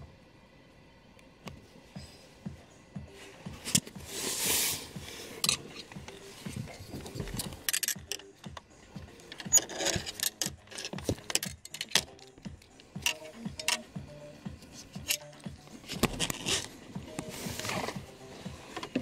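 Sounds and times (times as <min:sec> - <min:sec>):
plastic and metal clicks: 0:09.3 - 0:12.4.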